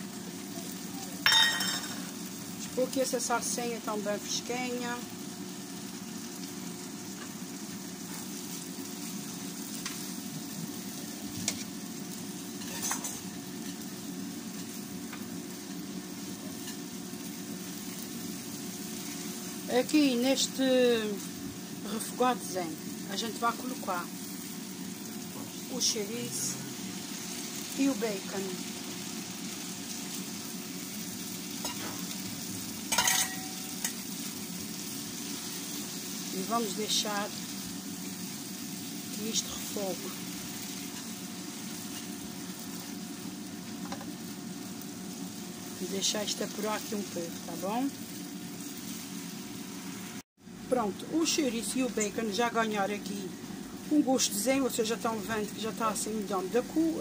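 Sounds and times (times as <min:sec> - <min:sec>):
vegetables sizzling in oil: 0:00.0 - 0:57.0
spatula scraping pan: 0:12.6 - 0:13.8.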